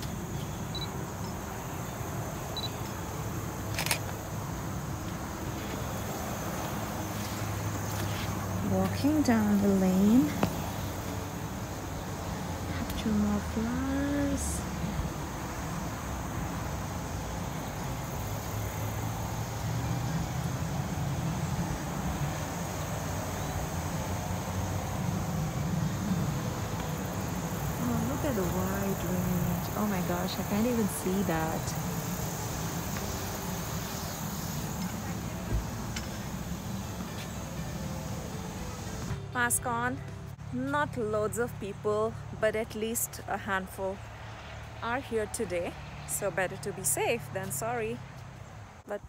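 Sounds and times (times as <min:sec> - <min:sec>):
insects chirring: 0:00.0 - 0:39.1
low outdoor background: 0:00.0 - 0:49.0
camera handling noise: 0:03.7 - 0:04.1.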